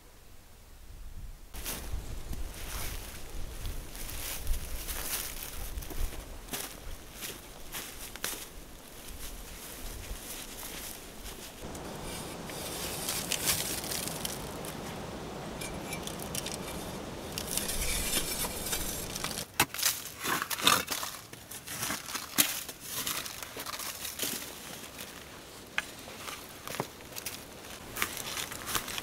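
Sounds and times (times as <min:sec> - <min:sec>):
steady rustling: 0:02.6 - 0:19.4
soil crumbling: 0:04.3 - 0:29.0.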